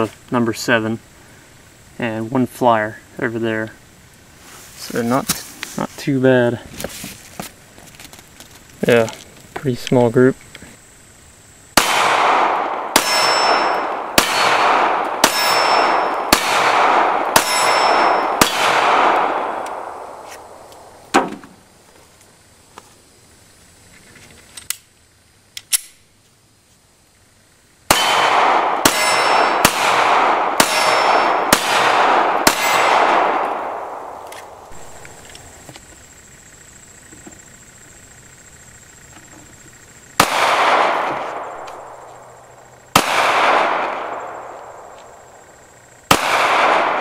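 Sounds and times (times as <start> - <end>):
pistol shots echoing: 11.8 - 21.0, 27.9 - 35.6, 40.2 - 45.4, 46.1 - 47.0
pistol reloading clicks: 25.5 - 26.0.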